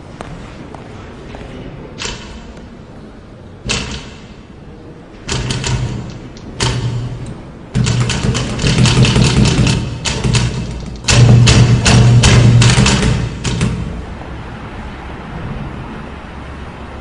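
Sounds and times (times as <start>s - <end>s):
low rumble with fast rattle: 5.2s - 14.4s.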